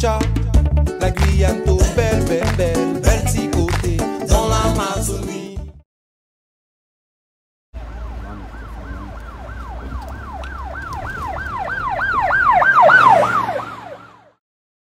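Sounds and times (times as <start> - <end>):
police siren sweeping: 7.8 - 14.4.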